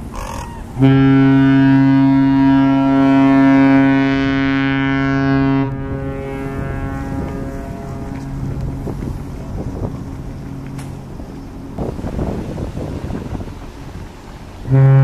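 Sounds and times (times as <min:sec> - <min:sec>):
deep ship whistle blast: 0:00.8 - 0:08.4, 0:14.6 - 0:15.0.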